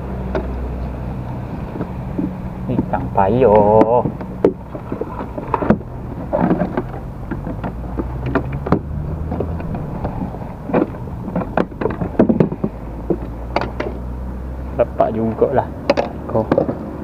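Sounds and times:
low rumble of pedal drive: 0.0 - 17.0
drive mechanism clicks and knocks: 1.8 - 14.0.

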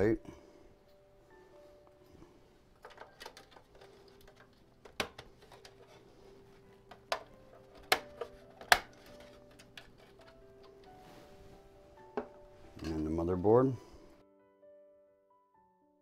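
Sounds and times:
small metal clicks: 2.8 - 5.9.

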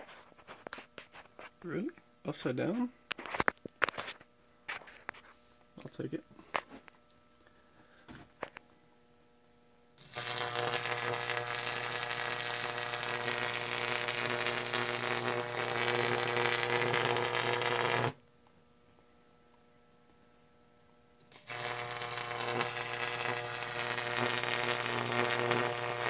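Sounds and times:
electric arc buzzing and crackling: 10.0 - 18.2, 21.2 - 26.0.

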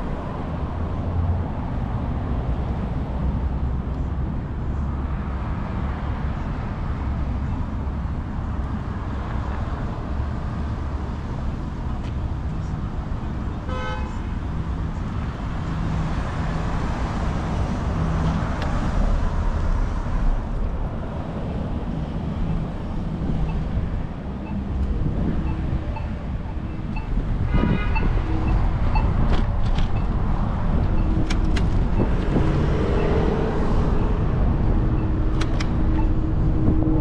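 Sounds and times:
road traffic: 0.0 - 37.0
wind rumbling on microphone: 15.2 - 37.0.

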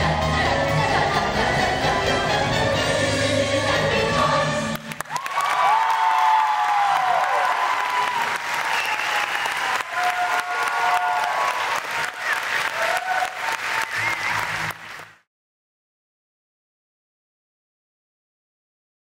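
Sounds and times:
audience applauding: 4.7 - 15.3
cheers and whoops: 5.0 - 14.7.

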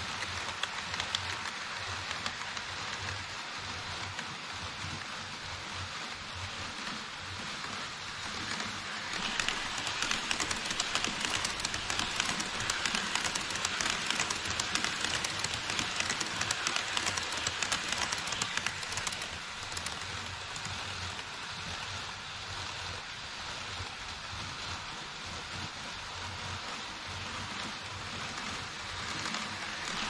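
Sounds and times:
model train wheels rattling: 0.0 - 21.9, 26.9 - 30.0.

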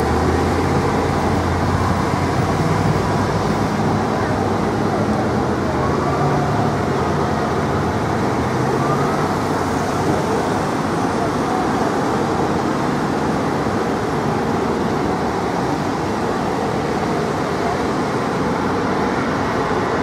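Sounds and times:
vehicles driving past: 0.0 - 20.0
faint siren: 4.9 - 12.0.

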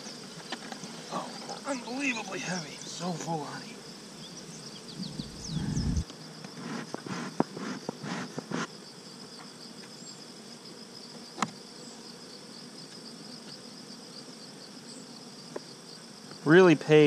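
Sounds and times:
honey bees buzzing: 0.0 - 17.0
dull rumble: 5.0 - 6.0.

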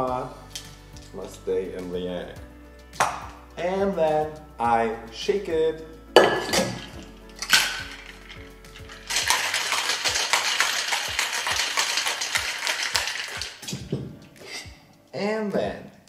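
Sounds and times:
metal tin clinking on glass: 6.2 - 14.6
ice cubes rattling in shaker: 6.8 - 13.9.

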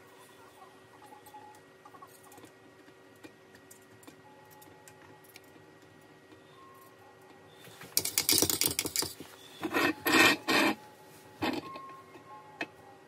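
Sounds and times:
faint steady hum: 0.0 - 13.0
scratchy rubbing and scraping: 8.6 - 10.8.

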